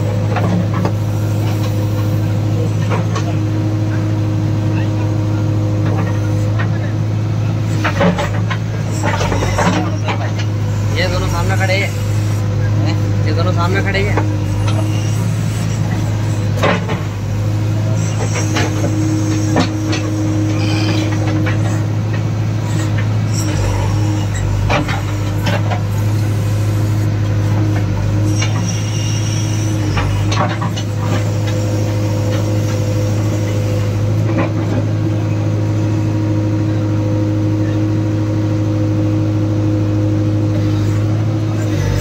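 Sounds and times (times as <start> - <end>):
diesel engine under load: 0.0 - 42.0.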